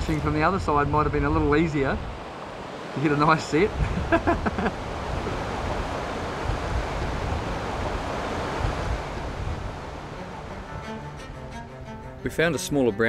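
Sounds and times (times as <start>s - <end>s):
wind buffeting microphone: 0.0s - 11.4s
river rushing over rocks: 4.7s - 10.6s.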